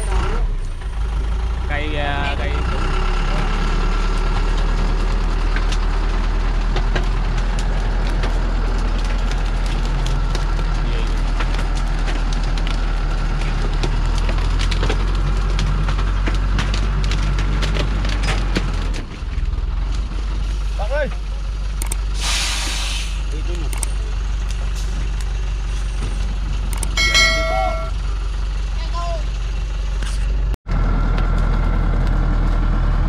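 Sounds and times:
truck diesel engine under load: 0:00.0 - 0:33.0
branches cracking under tyres: 0:04.0 - 0:20.2.

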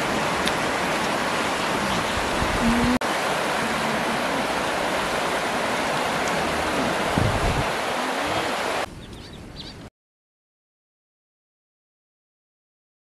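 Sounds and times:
river rushing over rocks: 0:00.0 - 0:08.9.

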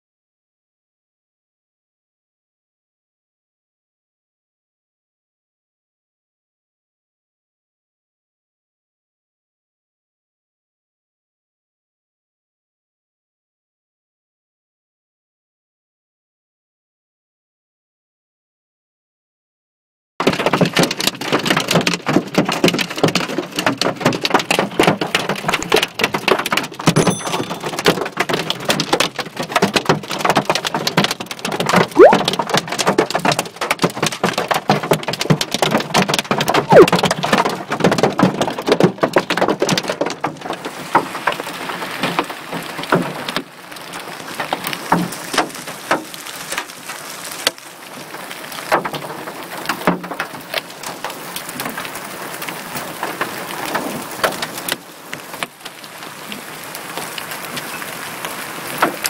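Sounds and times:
hail hammering a car: 0:20.2 - 0:59.0.

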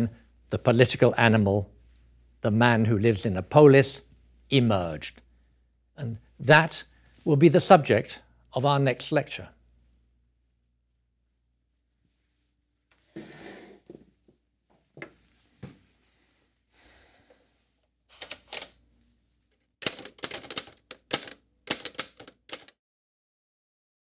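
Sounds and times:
short scrape: 0:13.1 - 0:14.0
typewriter key strikes: 0:19.8 - 0:22.7.

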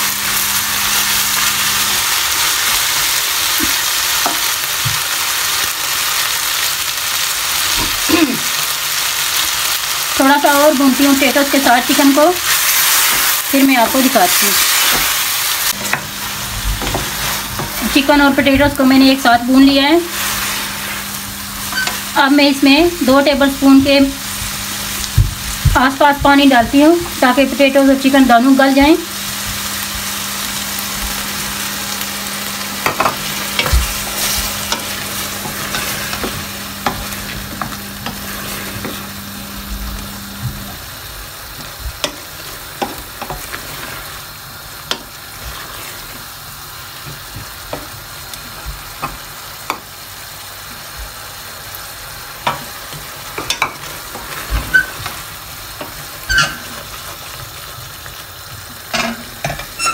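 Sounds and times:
food sizzling in a pan: 0:00.0 - 0:59.9
spoon scraping steel pan: 0:56.3 - 0:56.8, 0:59.5 - 0:59.9.

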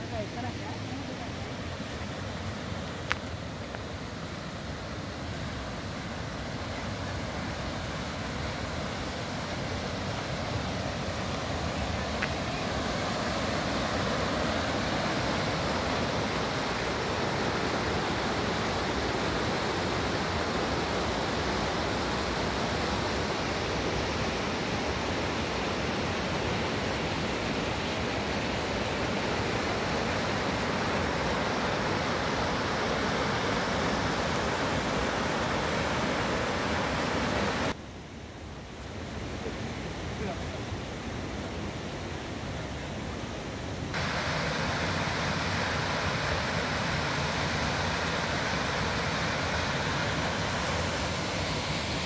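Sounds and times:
river rapids rushing: 0:00.0 - 0:37.8, 0:43.9 - 0:52.0.

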